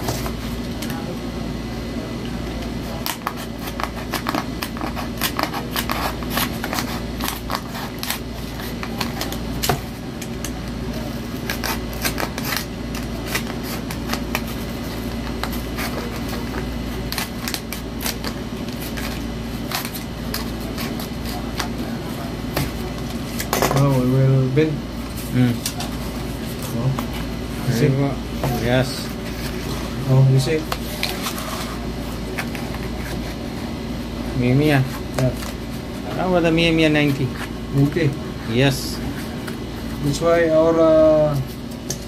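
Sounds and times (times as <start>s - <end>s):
steady low hum: 0.0s - 42.0s
knife cutting cardboard: 2.9s - 9.8s.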